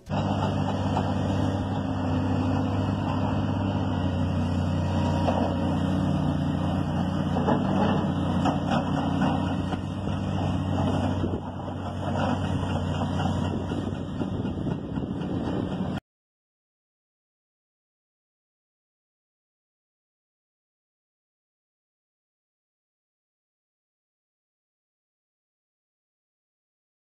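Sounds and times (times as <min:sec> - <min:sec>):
heavy machinery diesel engines: 0:00.0 - 0:16.0.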